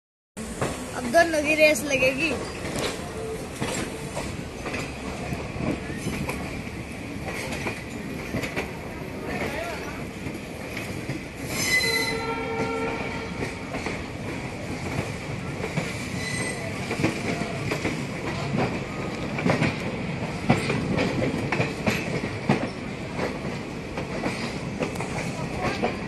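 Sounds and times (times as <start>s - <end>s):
train wheels rumbling on rail: 0.4s - 26.0s
wheels clacking over rail joints: 0.5s - 12.0s, 12.6s - 26.0s
high wheel squeal: 11.5s - 12.4s, 16.2s - 16.7s.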